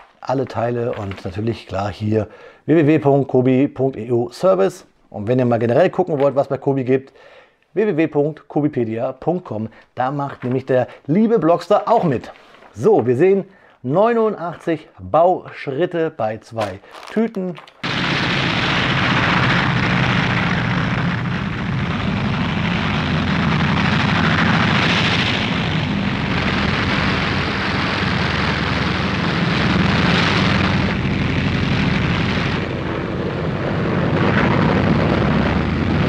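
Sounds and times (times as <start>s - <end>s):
rushing noise: 17.8s - 36.0s.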